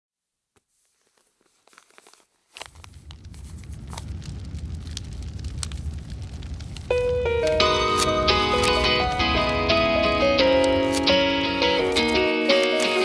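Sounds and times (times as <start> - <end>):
low rain rumble: 2.5 - 12.8
faint clicks: 2.6 - 8.8.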